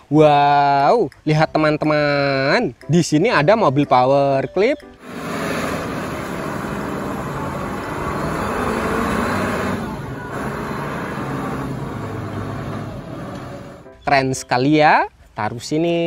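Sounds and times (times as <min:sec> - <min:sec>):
forklift engine running: 0:05.0 - 0:13.9.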